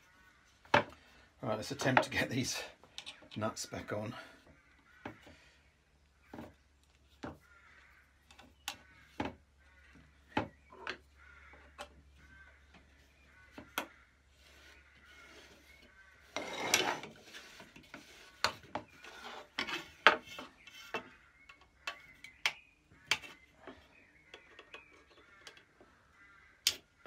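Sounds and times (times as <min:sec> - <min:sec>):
small metal clicks and taps: 0:02.9 - 0:03.4, 0:24.3 - 0:25.7.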